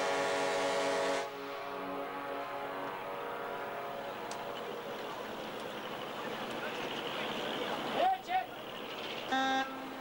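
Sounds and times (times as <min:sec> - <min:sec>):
ship's horn blast: 0:00.0 - 0:04.3, 0:09.3 - 0:10.0.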